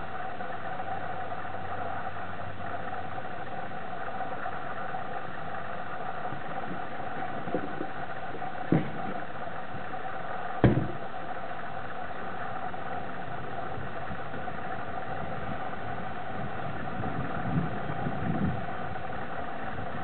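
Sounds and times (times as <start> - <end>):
low rumbling: 0.0 - 20.0
steady mechanical hum: 0.0 - 20.0
sharp knock: 10.6 - 11.0.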